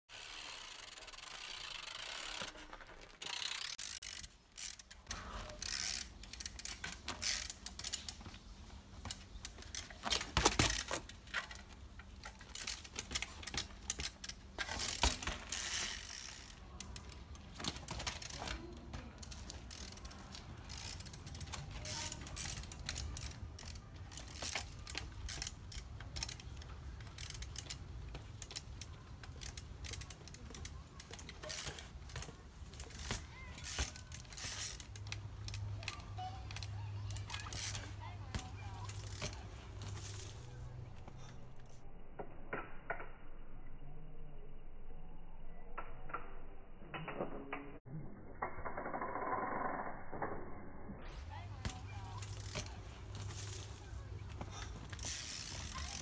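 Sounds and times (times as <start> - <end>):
bicycle freewheel hub ratcheting: 0.1 - 41.8, 51.2 - 56.0.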